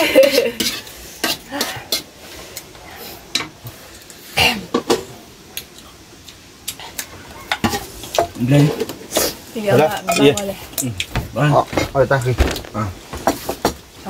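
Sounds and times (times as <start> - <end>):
dishes clinking: 7.4 - 12.6.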